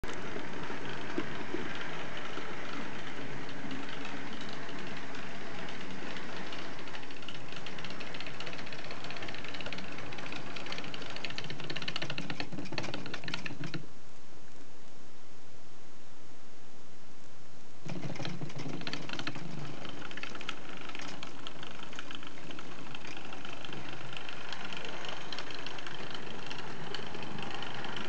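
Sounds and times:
rapid clicking of model train: 0:00.0 - 0:13.8, 0:17.8 - 0:28.0.

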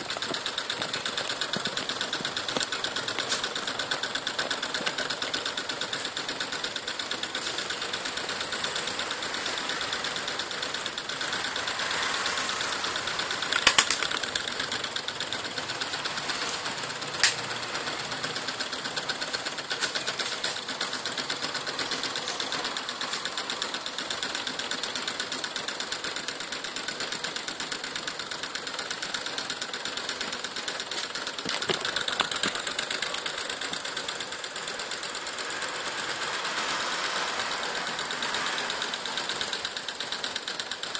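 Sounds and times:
small engine mechanical clatter: 0:00.0 - 0:40.9
sharp click: 0:17.0 - 0:17.6.

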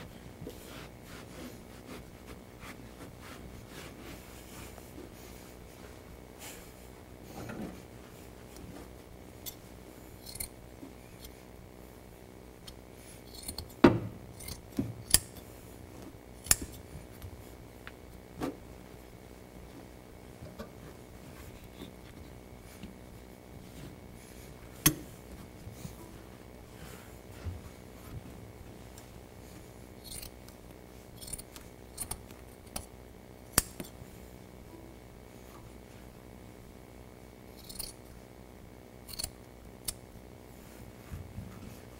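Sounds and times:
scissors snipping padding: 0:33.5 - 0:34.0
metal scissors clicking: 0:37.6 - 0:38.0, 0:39.1 - 0:40.0.

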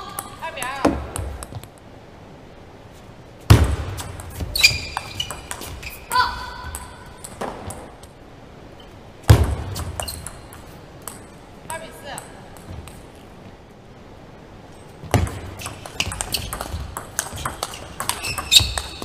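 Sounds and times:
ping pong ball clicking: 0:09.9 - 0:11.4, 0:15.6 - 0:19.0.

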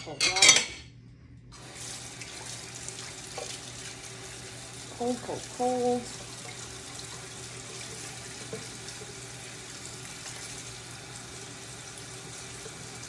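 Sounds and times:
tap water splashing over hand: 0:01.8 - 0:04.1, 0:07.8 - 0:09.2.

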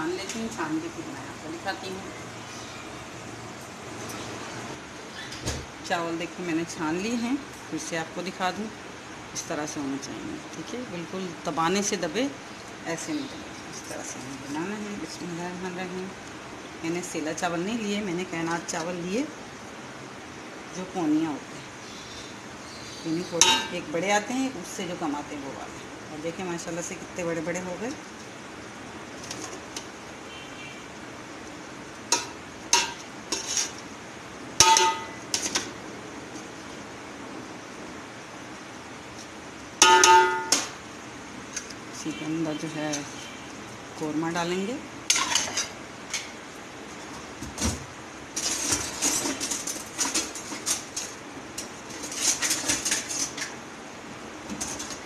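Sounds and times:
bowl clinking against metal pot: 0:34.6 - 0:35.2, 0:39.8 - 0:40.7.

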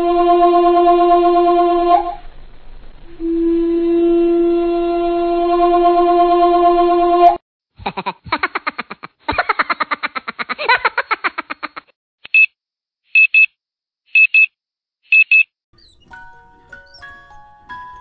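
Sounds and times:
soft bell-like music: 0:16.0 - 0:18.0.

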